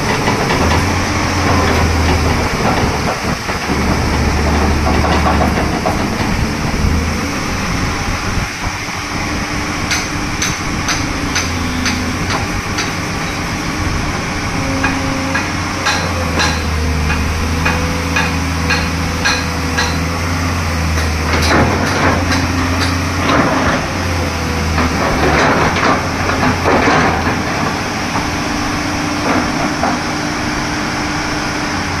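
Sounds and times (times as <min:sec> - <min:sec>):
excavator engine humming: 0:00.0 - 0:32.0.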